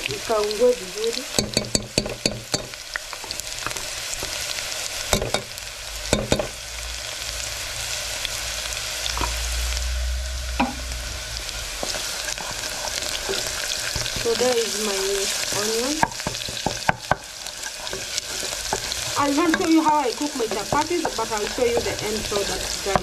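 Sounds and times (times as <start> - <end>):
onions sizzling in oil: 0.0 - 23.0
wooden spoon knocking pot: 1.3 - 2.8, 5.1 - 5.5, 6.2 - 6.5, 15.5 - 23.0.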